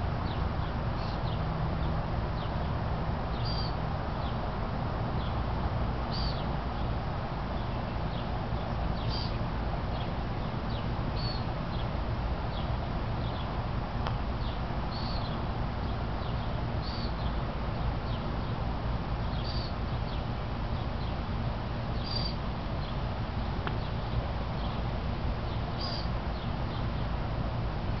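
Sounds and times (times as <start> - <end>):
bird chirping: 3.4 - 3.8, 6.1 - 6.4, 9.0 - 10.1, 10.7 - 11.9, 14.4 - 17.4, 19.2 - 20.2, 22.0 - 23.0, 25.5 - 27.1.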